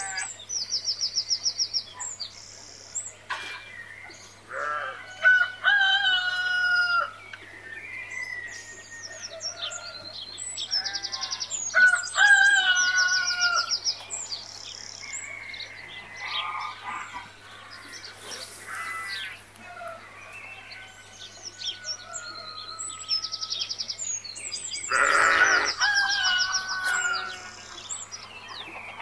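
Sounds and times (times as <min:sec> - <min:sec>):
chickens calling: 0:04.2 - 0:24.2, 0:24.8 - 0:29.0
small birds chirping: 0:07.1 - 0:29.0.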